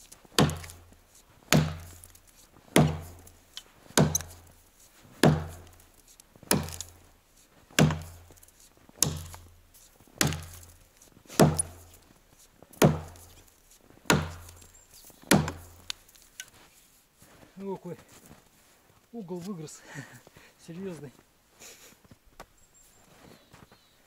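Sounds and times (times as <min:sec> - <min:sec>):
axe chopping tree trunk: 0:00.0 - 0:03.4, 0:04.0 - 0:04.6, 0:05.2 - 0:07.1, 0:07.8 - 0:09.6, 0:10.2 - 0:12.1, 0:12.8 - 0:16.5.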